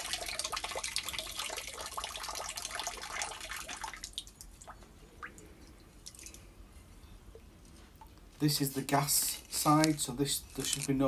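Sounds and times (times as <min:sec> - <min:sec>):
water stream splashing into tub: 0:00.0 - 0:04.4
water dripping: 0:00.0 - 0:06.5.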